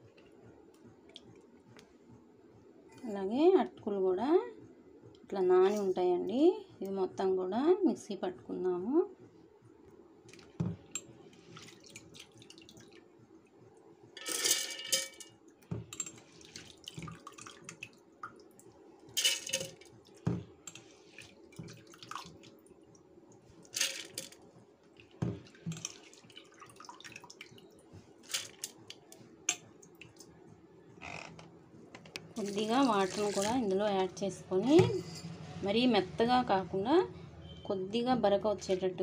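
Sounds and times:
small knocks and drips: 10.2s - 13.1s, 15.5s - 30.3s
wet clatters in steel jar: 19.2s - 19.9s, 23.7s - 24.4s, 28.2s - 28.9s.

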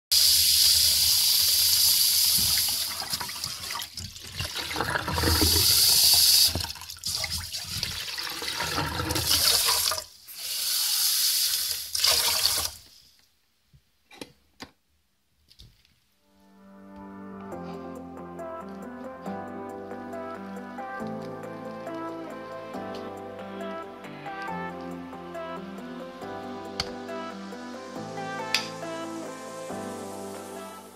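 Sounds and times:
tap water running into a pot: 0.1s - 12.8s
water poured into sink: 0.2s - 12.9s.

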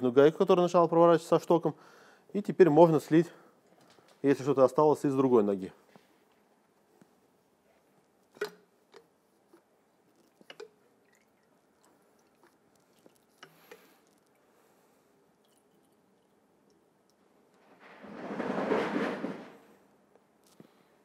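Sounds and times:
oil dripping: 7.9s - 17.6s.

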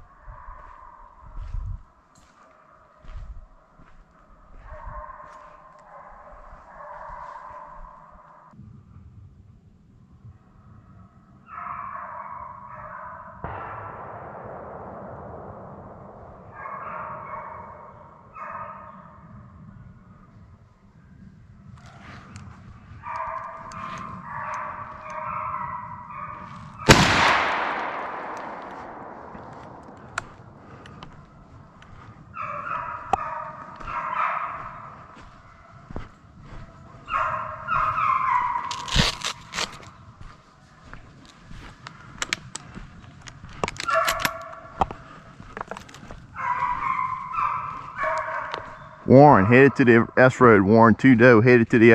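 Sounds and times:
hounds baying: 2.2s - 8.6s, 11.5s - 13.6s, 16.5s - 19.5s, 21.8s - 39.0s, 43.8s - 50.6s
shotgun blast echoing: 13.4s - 18.1s, 26.8s - 32.1s
clicks from carried gear: 38.6s - 39.9s, 41.2s - 46.7s
footsteps crunching on dry leaves: 38.6s - 43.6s.

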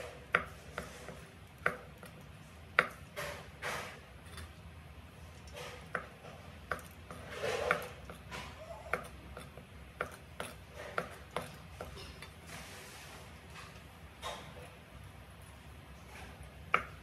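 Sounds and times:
rustling scrape: 0.6s - 1.3s, 7.2s - 7.8s, 12.4s - 13.8s.

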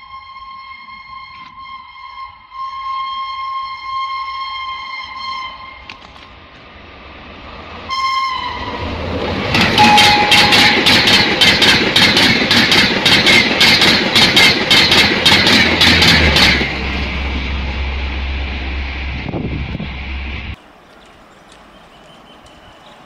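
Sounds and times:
train horn: 0.0s - 6.0s, 7.9s - 11.2s
train wheels clacking over rail joints: 9.1s - 17.0s.

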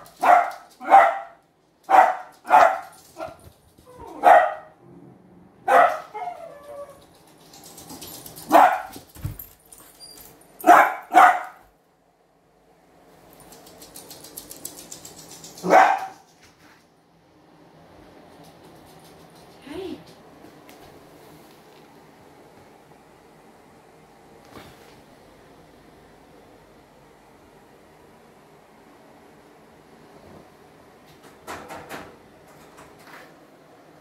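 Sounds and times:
dog barking: 0.1s - 3.4s, 4.2s - 4.8s, 5.6s - 6.4s, 8.5s - 9.0s, 10.6s - 11.6s, 15.6s - 16.3s.

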